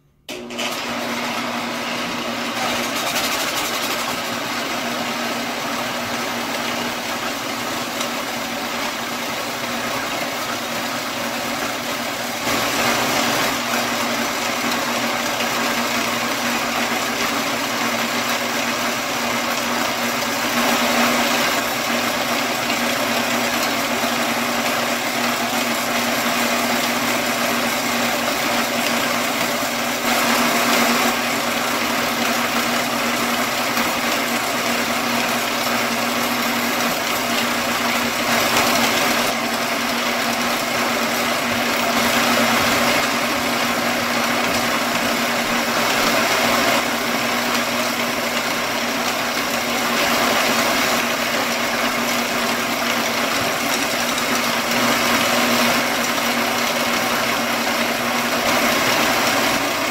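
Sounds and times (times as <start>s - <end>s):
band saw cutting metal: 2.5s - 4.4s.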